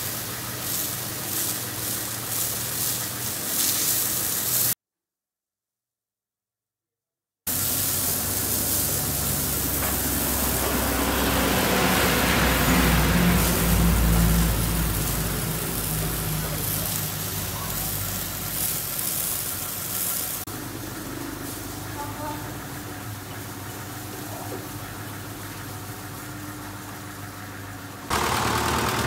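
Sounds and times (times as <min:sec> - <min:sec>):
truck engine running: 0:07.5 - 0:29.0.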